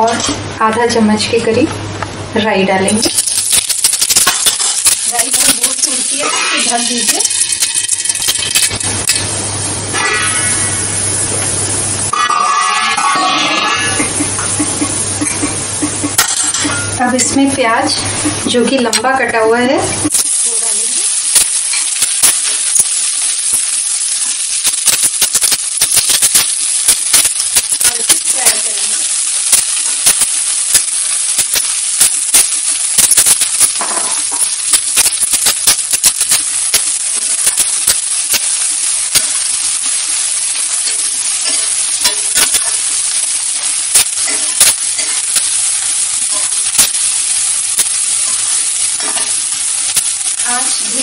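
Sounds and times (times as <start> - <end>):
onions sizzling in oil: 0.0 - 51.0
spatula scraping pan: 4.2 - 8.8, 12.1 - 14.1
sharp popping clicks: 29.5 - 39.7.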